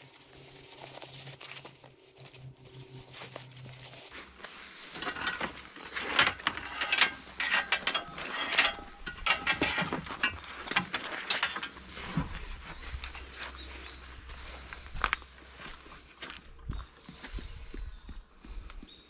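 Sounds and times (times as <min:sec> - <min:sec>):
metal gear rattling and clinking: 0:05.0 - 0:12.4.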